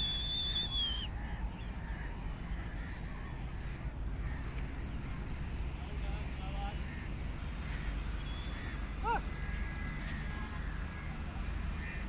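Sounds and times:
high whistle: 0:00.0 - 0:01.1
crows cawing: 0:01.1 - 0:12.0.

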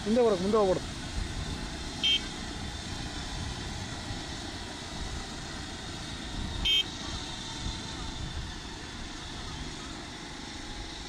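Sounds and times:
helicopter turbine and rotor: 0:00.0 - 0:11.0.

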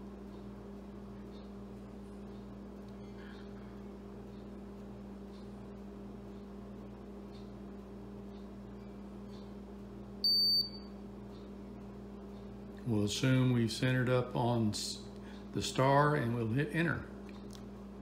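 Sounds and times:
short high-pitched beep: 0:10.2 - 0:10.9.

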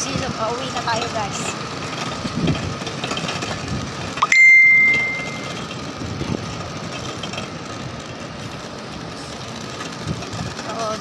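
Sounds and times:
small bell ding: 0:04.2 - 0:05.6.

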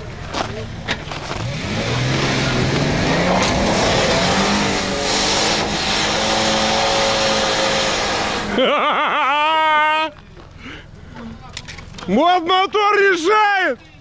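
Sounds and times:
engine revving hard: 0:01.3 - 0:08.6.

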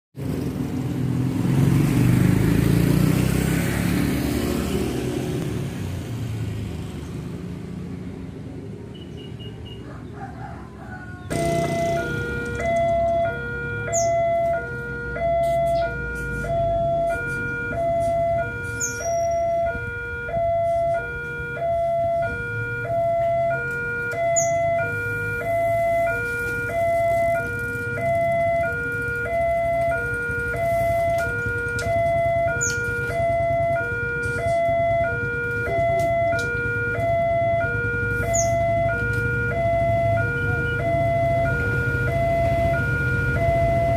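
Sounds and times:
two-tone crossing alarm: 0:10.7 - 0:43.9.

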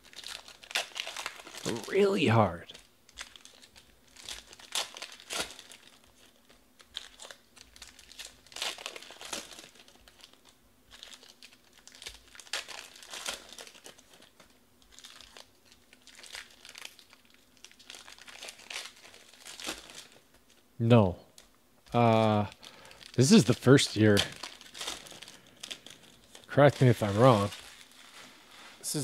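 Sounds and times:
foil wrappers crinkling: 0:00.0 - 0:20.7, 0:21.3 - 0:29.0
cards being shuffled: 0:23.1 - 0:29.0.

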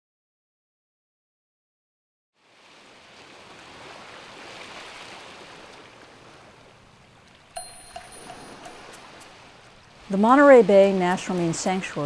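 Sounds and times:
ocean surf on sand: 0:02.4 - 0:12.0.

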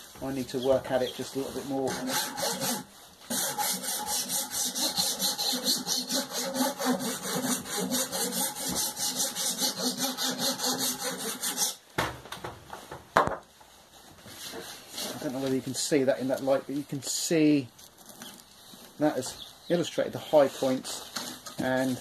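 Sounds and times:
hand file rasping on metal: 0:01.4 - 0:11.8.

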